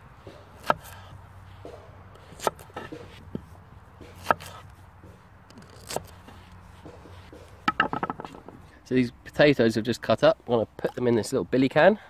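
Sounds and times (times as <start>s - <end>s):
knife knocking on wooden board: 6.8s - 8.6s.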